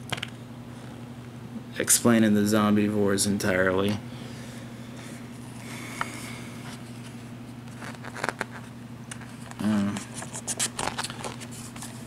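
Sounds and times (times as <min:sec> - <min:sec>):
steady low hum: 0:00.0 - 0:12.0
page turning: 0:07.7 - 0:12.0
paper crackling: 0:07.7 - 0:12.0
short voice hum: 0:09.6 - 0:10.1.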